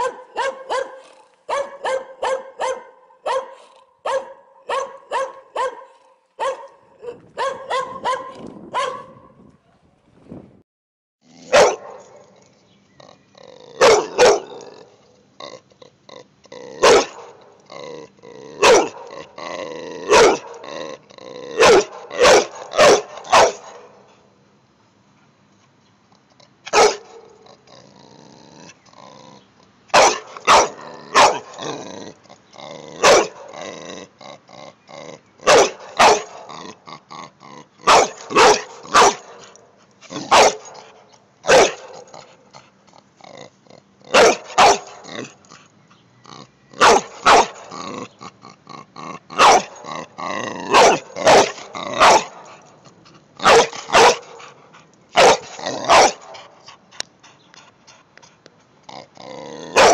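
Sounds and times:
dog barking: 0:00.0 - 0:09.3, 0:11.5 - 0:12.1, 0:13.8 - 0:14.5, 0:16.8 - 0:17.3, 0:18.6 - 0:19.1, 0:20.1 - 0:20.6, 0:21.6 - 0:24.0, 0:26.7 - 0:27.3, 0:29.9 - 0:31.5, 0:33.0 - 0:33.5, 0:35.5 - 0:36.4, 0:37.9 - 0:39.4, 0:40.3 - 0:40.8, 0:41.5 - 0:42.0, 0:44.2 - 0:45.0, 0:46.8 - 0:47.7, 0:49.4 - 0:49.8, 0:50.7 - 0:52.4, 0:53.4 - 0:54.5, 0:55.2 - 0:56.2
dog growling: 0:12.3 - 0:16.9, 0:17.6 - 0:21.7, 0:27.4 - 0:29.5, 0:30.6 - 0:39.0, 0:40.0 - 0:40.4, 0:42.1 - 0:44.4, 0:45.0 - 0:52.6, 0:55.4 - 0:56.1, 0:58.8 - 0:59.9.

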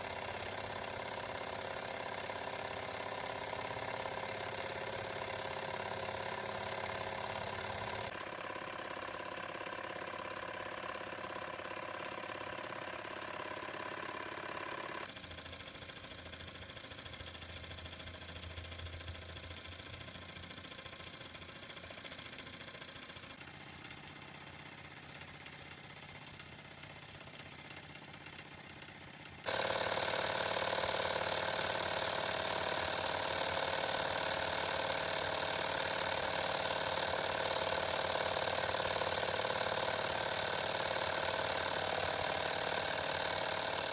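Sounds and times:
model steam engine running: 0:00.0 - 0:43.9.

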